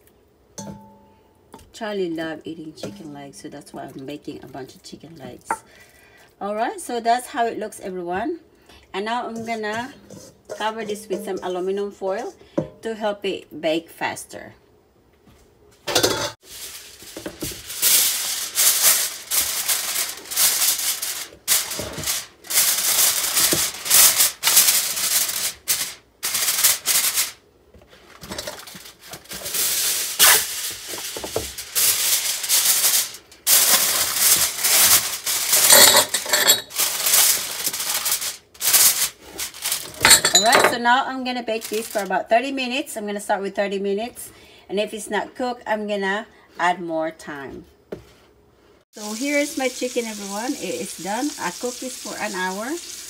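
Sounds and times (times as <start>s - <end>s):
aluminium foil crinkling: 16.4s - 40.7s, 41.4s - 42.3s, 49.0s - 53.0s.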